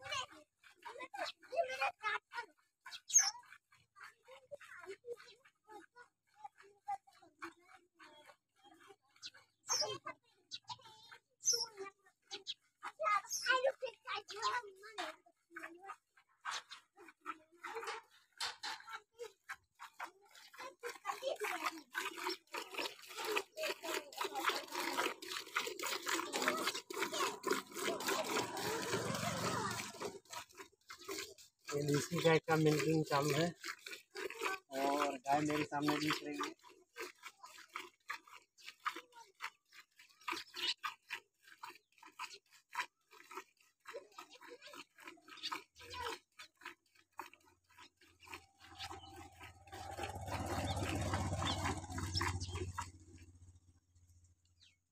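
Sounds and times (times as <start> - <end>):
milk squirting into steel pail: 16.0 - 53.6.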